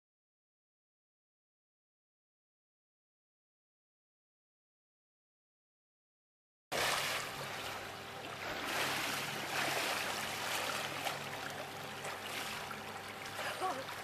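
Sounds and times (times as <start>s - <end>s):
pool water splashing: 6.7s - 14.0s.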